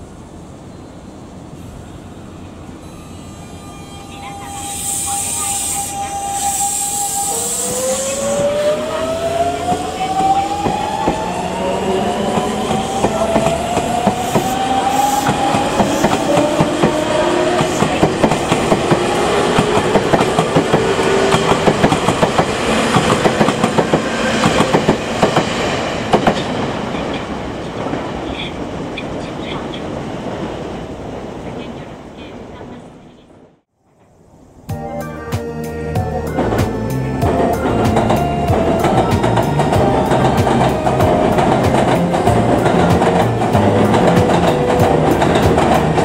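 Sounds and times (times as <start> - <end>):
electric train motor whine: 2.8 - 16.8
wheels clacking over rail joints: 37.3 - 46.0.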